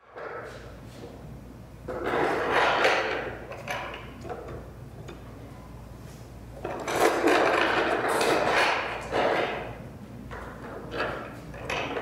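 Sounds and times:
cart casters rolling on concrete: 6.6 - 12.0.

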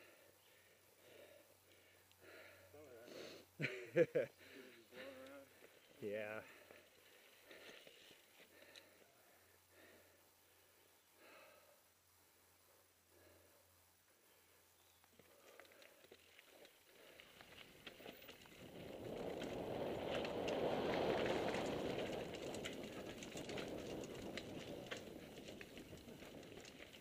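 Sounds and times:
bike tyres roaring on dirt: 14.9 - 27.0
bike rattling over roots: 15.4 - 27.0
wind rush: 18.6 - 26.0.

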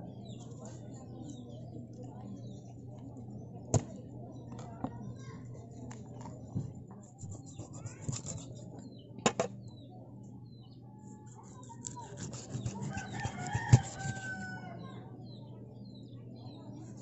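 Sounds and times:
knife chopping fish on wood: 11.8 - 14.3
rooster crowing: 12.8 - 14.9.

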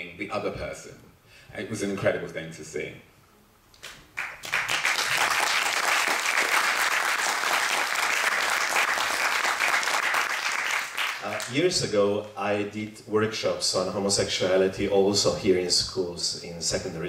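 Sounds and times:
audience applauding: 3.8 - 11.5.

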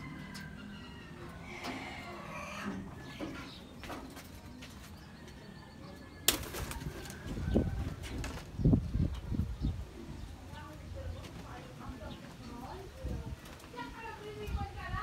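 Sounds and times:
pigeons cooing: 0.0 - 3.9
wings flapping: 6.3 - 8.6.

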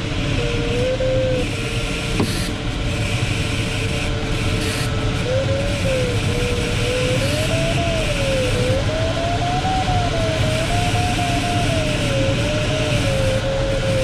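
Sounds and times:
airflow rush in cockpit: 0.0 - 14.0
electronic variometer tone: 0.0 - 14.0.

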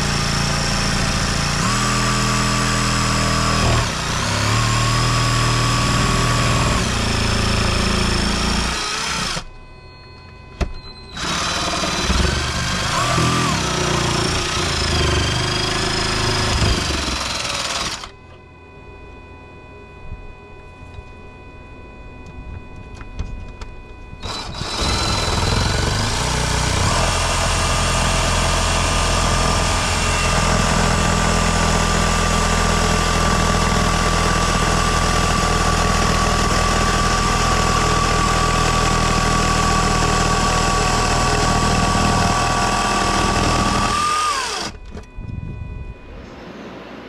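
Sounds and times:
power drill boring through wall: 0.0 - 9.5, 11.1 - 18.2, 24.2 - 44.9.

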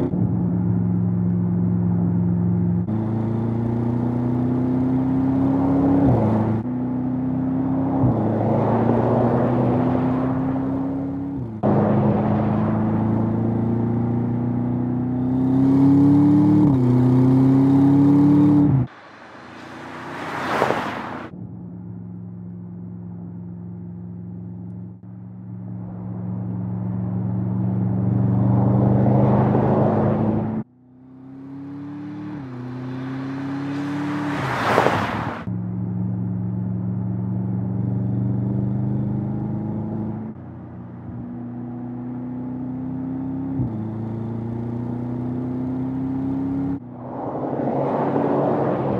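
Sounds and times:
car engine accelerating and shifting: 0.0 - 48.9
car rushing past: 7.6 - 21.3, 25.8 - 35.5, 45.8 - 48.9.

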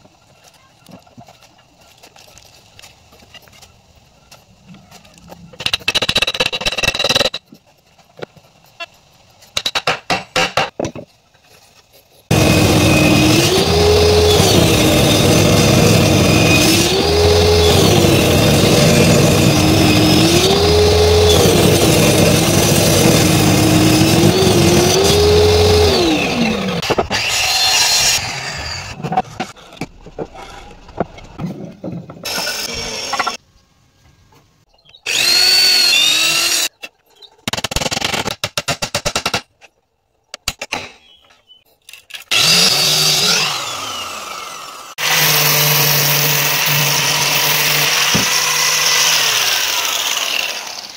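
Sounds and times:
workshop tool noise: 11.8 - 33.4, 41.8 - 50.9
table saw ripping wood: 12.3 - 30.0, 32.1 - 33.4, 35.1 - 36.7, 42.2 - 50.9.

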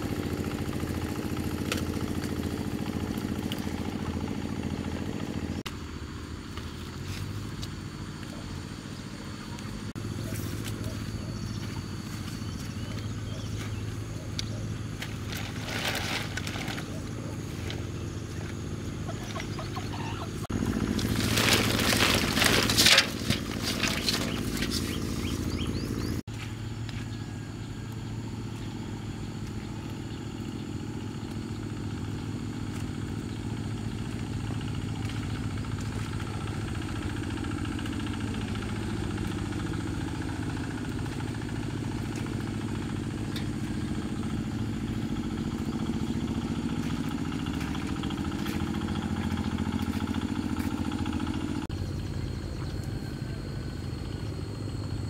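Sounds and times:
motorbike engine running: 0.0 - 55.0.

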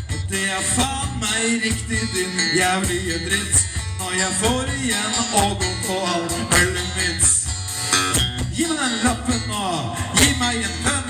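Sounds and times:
person singing: 0.0 - 7.5, 8.5 - 11.0
drums: 0.0 - 11.0
electric guitar: 0.0 - 11.0.

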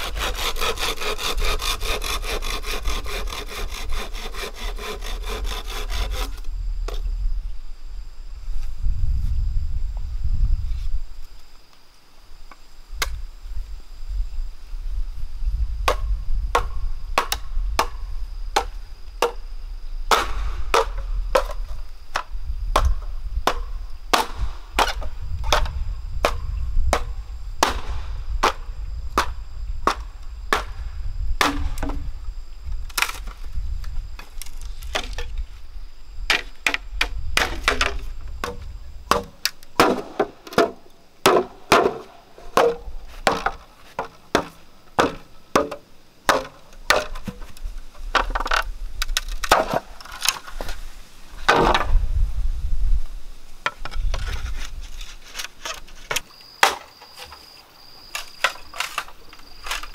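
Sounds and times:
machete chopping bamboo: 20.1 - 21.6, 22.2 - 28.6, 31.4 - 32.0, 36.3 - 47.4, 56.6 - 57.4.

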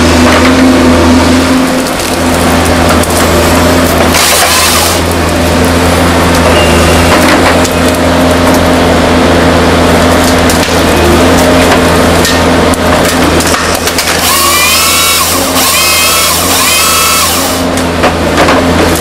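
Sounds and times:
high machine whine: 0.0 - 18.0
diesel engine running: 0.0 - 19.0
wood cracking and snapping: 1.7 - 6.5.

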